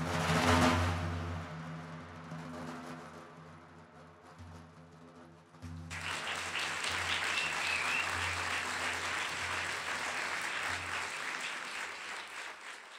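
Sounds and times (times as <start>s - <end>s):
audience applause: 5.9s - 12.9s
crowd whistle: 5.9s - 12.9s.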